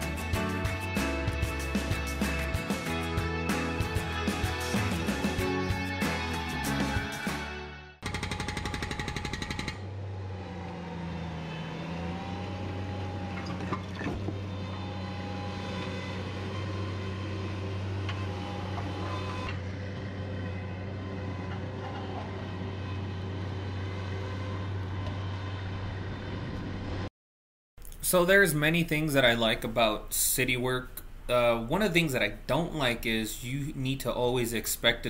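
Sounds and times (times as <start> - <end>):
hydraulic breaker hammering concrete: 8.0 - 9.9
loader engine running: 8.0 - 27.1.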